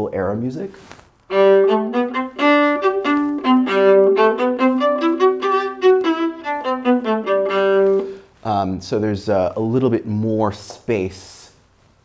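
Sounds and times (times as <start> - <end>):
viola spiccato notes: 1.3 - 8.2.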